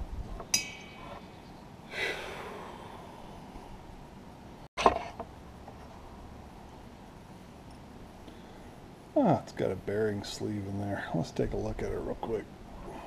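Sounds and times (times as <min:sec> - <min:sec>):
metallic clink: 0:00.5 - 0:01.4.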